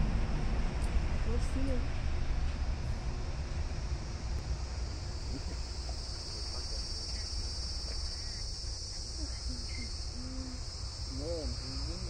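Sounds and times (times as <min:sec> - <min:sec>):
low rumble: 0:00.0 - 0:11.2
high-pitched insect chorus: 0:03.1 - 0:12.0.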